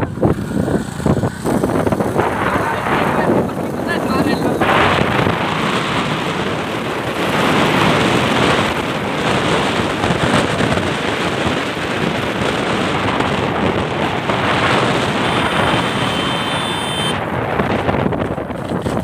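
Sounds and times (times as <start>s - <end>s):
motorcycle road noise: 0.0s - 19.0s
wind buffeting microphone: 0.0s - 19.0s.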